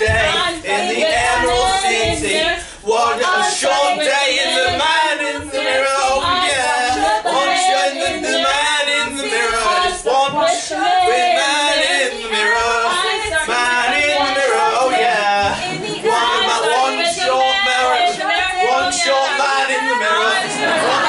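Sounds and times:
dull low thuds: 0.0s - 3.1s
voices singing and calling out: 0.0s - 21.0s.

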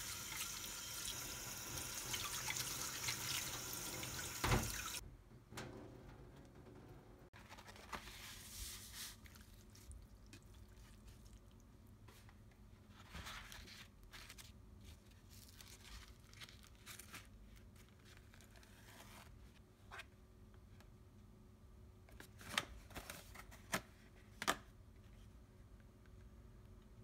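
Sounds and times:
paper towel rustling and tearing: 7.4s - 10.0s.

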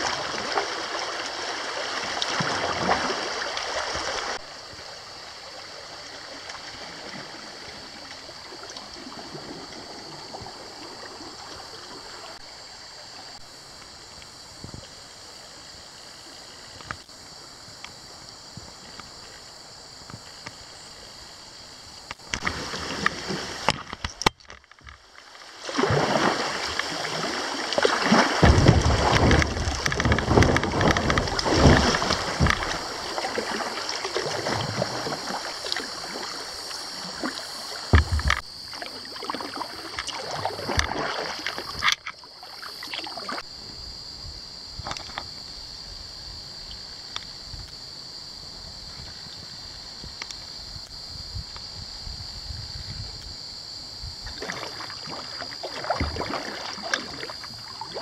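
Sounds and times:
water rushing and splashing: 0.0s - 13.9s, 21.6s - 43.5s, 54.2s - 58.0s
steady outdoor hiss: 0.0s - 58.0s.

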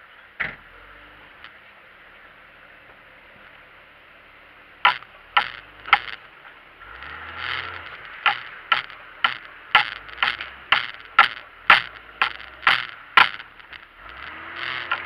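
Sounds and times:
vehicle noise with low hum: 0.0s - 15.0s
mechanical ticking: 4.8s - 6.2s, 6.8s - 15.0s.

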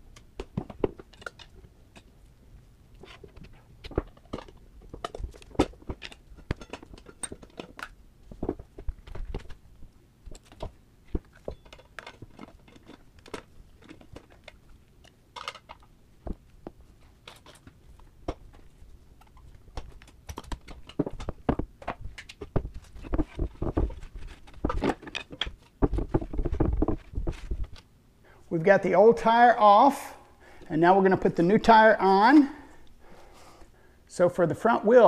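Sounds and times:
tools knocking and scraping on wheel: 3.0s - 9.6s, 10.3s - 27.8s.

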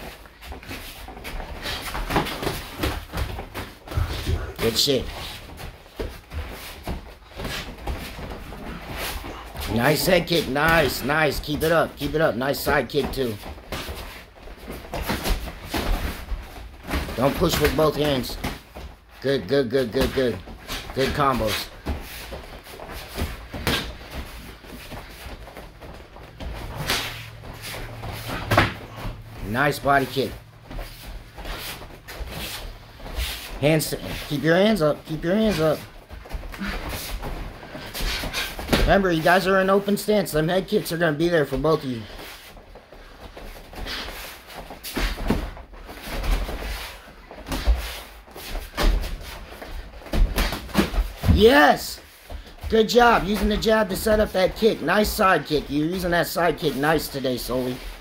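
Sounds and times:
feet scuffing on floor mats: 30.4s - 34.3s, 42.0s - 51.4s.

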